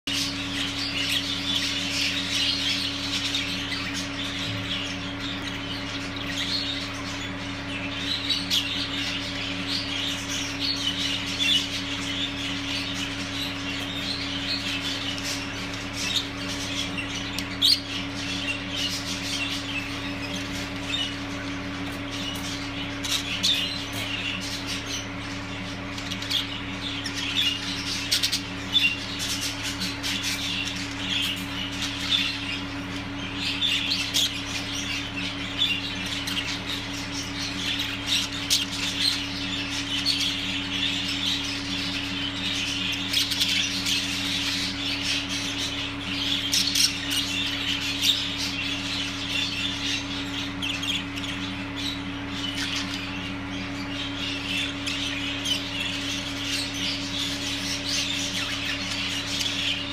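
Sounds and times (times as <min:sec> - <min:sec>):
budgerigars chattering: 0:00.1 - 0:59.9.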